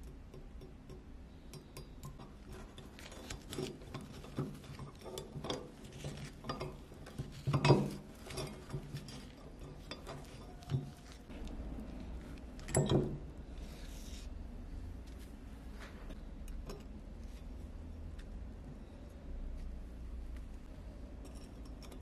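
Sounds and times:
small metal clinks and scrapes: 0:00.0 - 0:14.3, 0:21.0 - 0:22.0.

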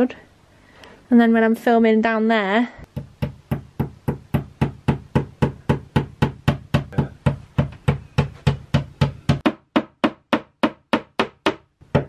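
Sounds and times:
hammer tapping a nail: 0:02.9 - 0:12.0.

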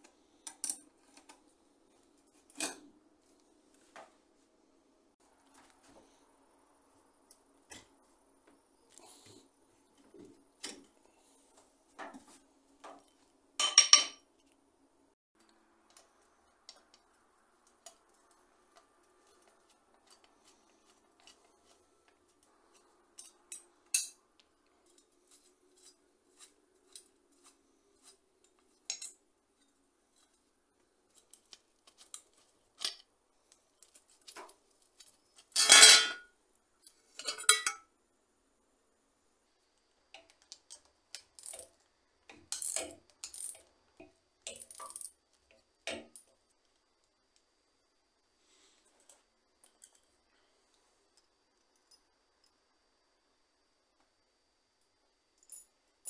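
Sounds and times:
small metal clicks of tools: 0:00.4 - 0:01.4, 0:22.4 - 0:27.1, 0:28.0 - 0:30.4, 0:40.1 - 0:47.1, 0:49.0 - 0:50.1.

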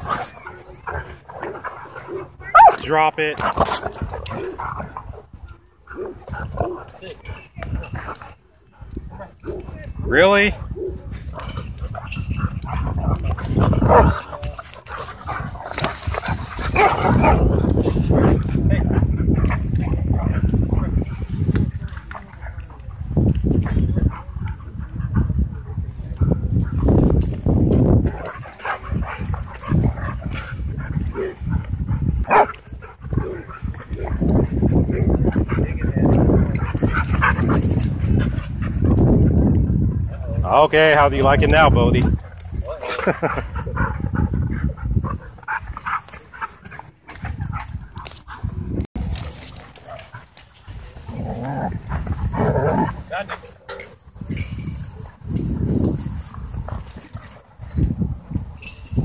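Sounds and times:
dogs growling and grunting: 0:00.0 - 0:07.0, 0:10.6 - 0:21.2, 0:28.0 - 0:40.4, 0:50.9 - 0:54.0.

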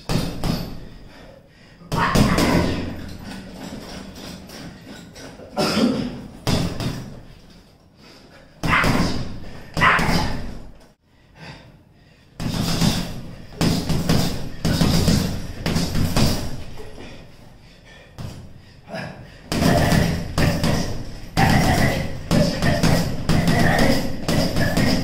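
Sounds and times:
punches on heavy bag: 0:12.4 - 0:16.7, 0:19.5 - 0:25.0.

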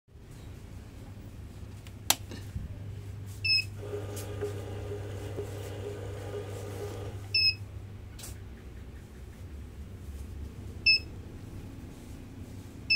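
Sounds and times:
banknote counter motor and rollers: 0:03.8 - 0:07.5.

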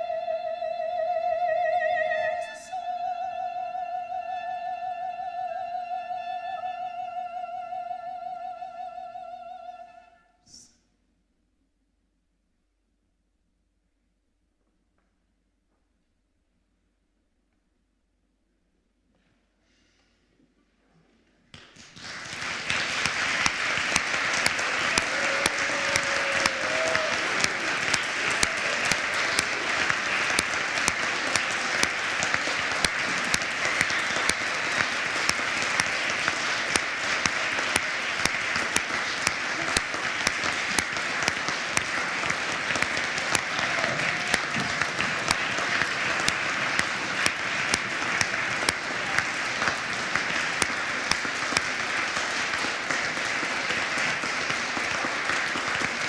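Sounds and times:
audience applauding: 0:21.6 - 0:56.0.

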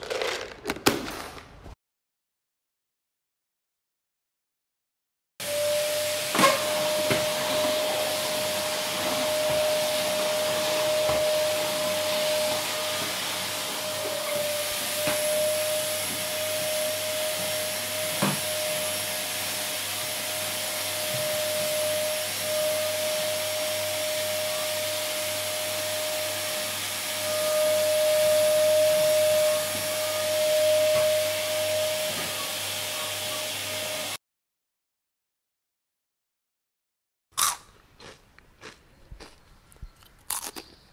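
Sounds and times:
vacuum cleaner running: 0:05.4 - 0:34.2.

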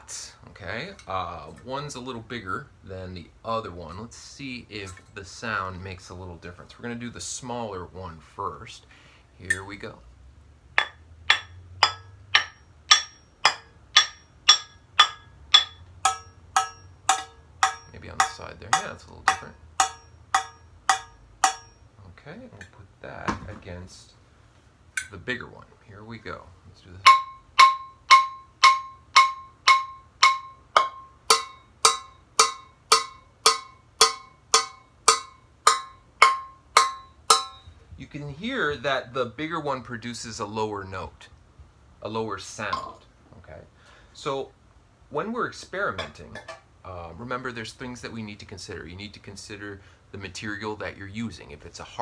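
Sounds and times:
wooden stick striking saucepan: 0:10.8 - 0:21.8, 0:27.0 - 0:37.7.

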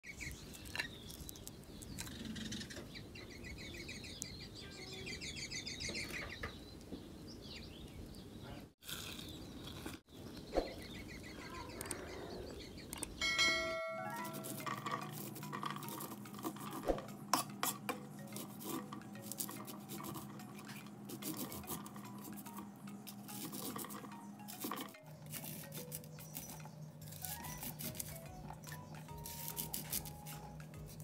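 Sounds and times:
small birds chirping: 0:00.0 - 0:16.8, 0:18.1 - 0:31.0
bright chime: 0:13.2 - 0:16.1.

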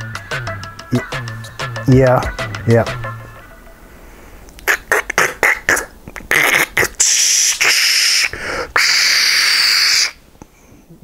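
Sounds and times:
man making static noises with mouth: 0:04.5 - 0:10.2
mouth clicking and spitting bursts: 0:04.5 - 0:10.2
long hissing shhh sounds: 0:06.5 - 0:10.2.

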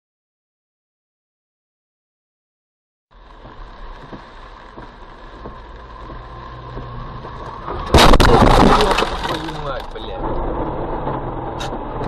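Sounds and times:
car engine and road noise: 0:03.1 - 0:12.0.

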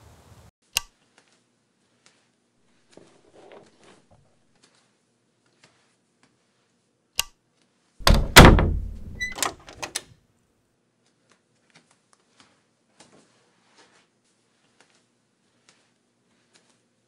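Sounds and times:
door heavy thud: 0:08.0 - 0:10.0
door latch click: 0:08.0 - 0:10.0.

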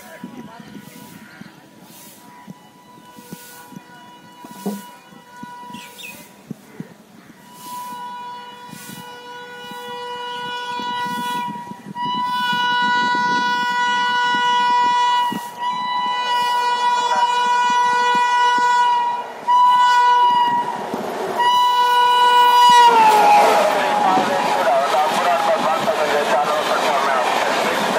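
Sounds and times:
train rumble: 0:00.0 - 0:27.9
locomotive air horn blasts: 0:02.0 - 0:06.3, 0:07.4 - 0:20.8, 0:21.4 - 0:25.6.

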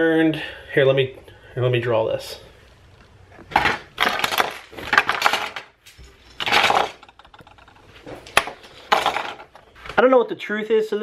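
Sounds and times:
plastic bricks clattering and clicking: 0:03.4 - 0:09.7.

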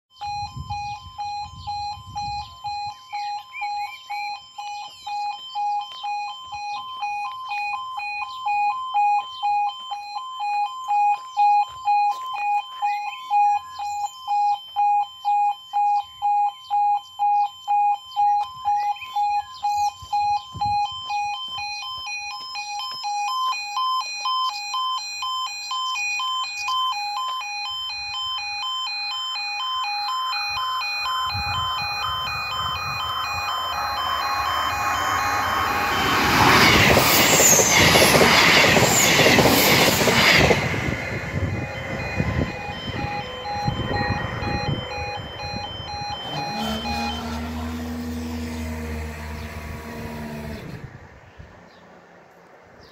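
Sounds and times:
level crossing alarm beeping: 0:00.1 - 0:51.0
birds chirping: 0:02.4 - 0:09.7, 0:11.2 - 0:14.6, 0:15.6 - 0:20.1, 0:46.2 - 0:52.0
rushing noise: 0:31.4 - 0:51.2.

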